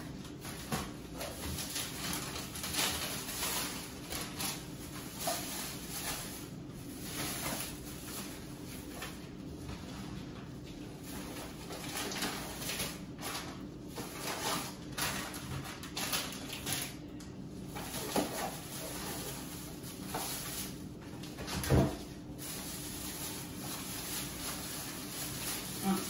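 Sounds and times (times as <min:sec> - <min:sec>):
plastic bag rustling: 0:00.2 - 0:26.0.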